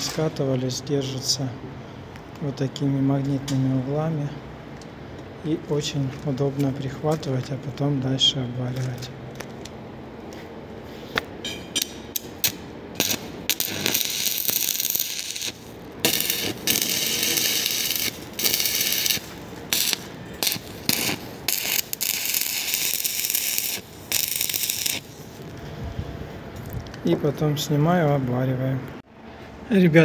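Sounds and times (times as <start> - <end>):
welding arc crackling and sizzling: 0.0 - 0.4, 11.2 - 25.6.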